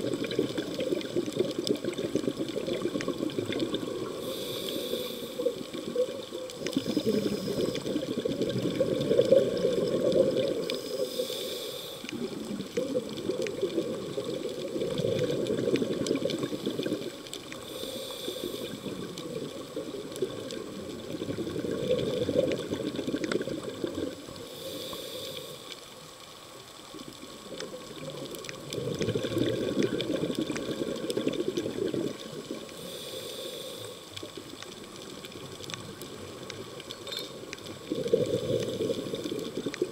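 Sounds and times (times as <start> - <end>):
exhaled air bubbling: 0.0 - 26.1, 26.8 - 39.9
regulator inhale hiss: 4.0 - 5.8, 6.6 - 8.2, 10.4 - 12.6, 17.5 - 19.2, 24.4 - 26.1, 32.7 - 34.4.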